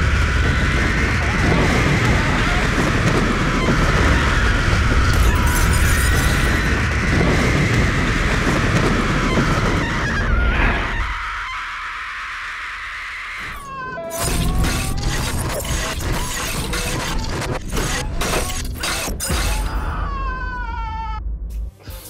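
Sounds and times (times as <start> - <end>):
crashing and shattering: 0.0 - 10.1
woman screaming: 19.5 - 21.2.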